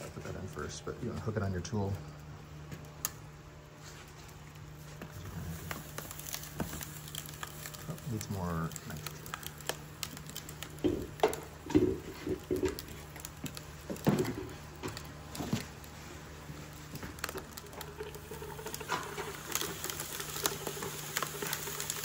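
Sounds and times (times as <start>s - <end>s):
liquid nitrogen crackling pops: 0.0s - 22.0s
liquid pouring with a hiss: 16.0s - 22.0s.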